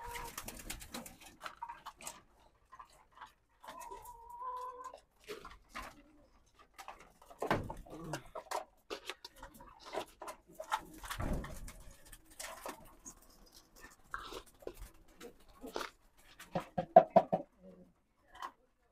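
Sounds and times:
pigeons and chickens calling: 0.0 - 2.5, 3.6 - 6.2.

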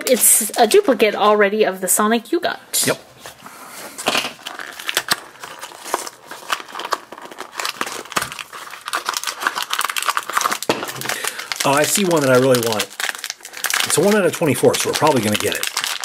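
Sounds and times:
foil bag crinkling: 4.0 - 16.0.

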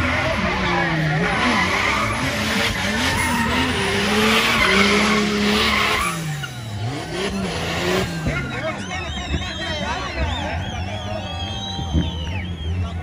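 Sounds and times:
car engine revving hard: 0.0 - 9.6
tyres screeching: 0.3 - 12.2.

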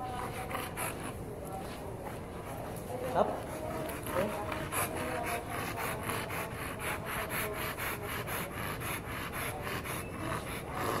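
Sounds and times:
dog panting rapidly: 0.0 - 1.3, 2.1 - 11.0.

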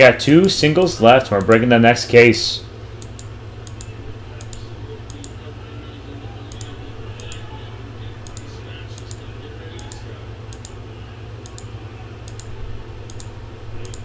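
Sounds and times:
low hum: 0.0 - 14.0
computer keyboard typing: 6.5 - 7.4, 11.4 - 14.0.

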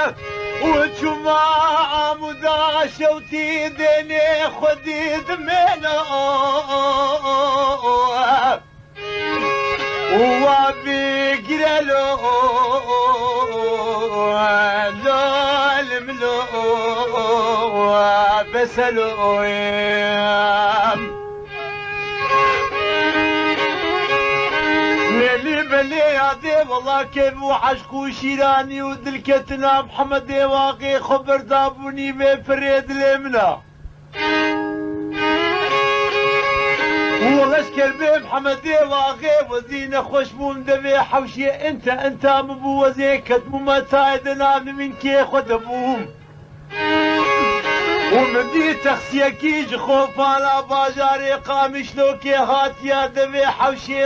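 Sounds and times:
low held drone: 0.0 - 1.7, 7.7 - 13.5, 14.7 - 27.8, 33.7 - 38.9, 42.6 - 50.7
violin melody with vibrato: 0.0 - 31.1, 34.1 - 54.0.

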